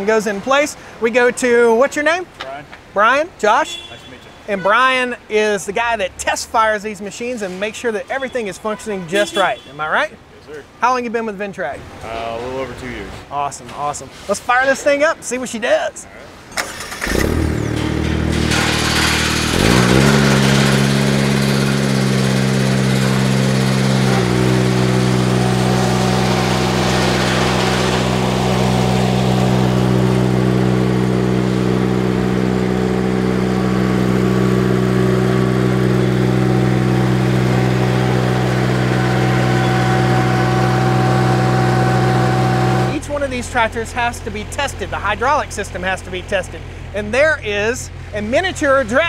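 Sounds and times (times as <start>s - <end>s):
tractor engine revving: 16.5s - 48.6s.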